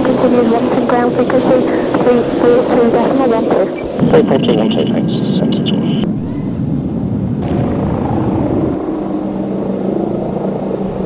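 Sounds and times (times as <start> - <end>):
jet engines running at low power: 0.0 - 11.0.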